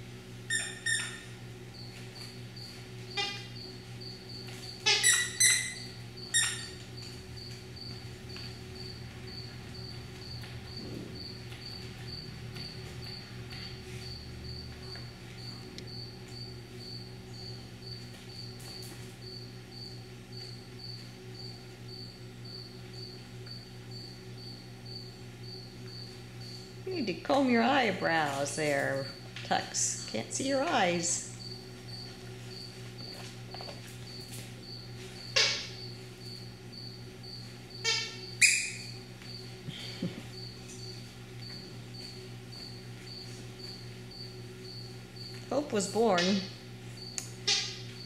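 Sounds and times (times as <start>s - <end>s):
squeaky dog toy squeaks: 0.5s - 1.2s, 4.9s - 5.8s
insect chirping: 0.5s - 27.5s, 29.9s - 48.0s.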